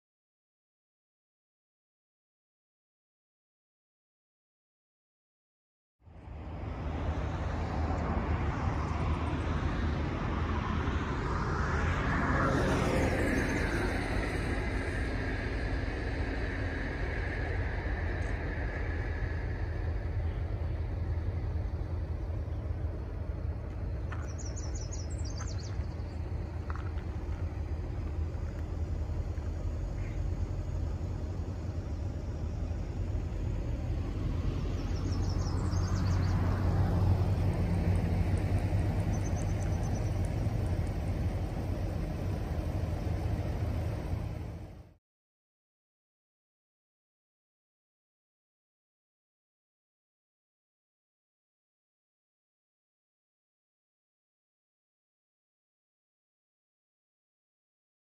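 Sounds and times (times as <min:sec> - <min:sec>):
distant road traffic rumble: 0:06.0 - 0:45.0
vehicle passing: 0:06.2 - 0:45.0.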